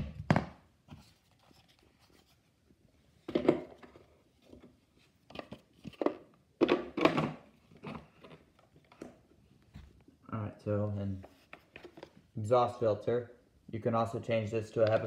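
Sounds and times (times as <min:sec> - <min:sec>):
plastic parts clunking and rustling: 0:03.2 - 0:09.3, 0:11.2 - 0:12.3.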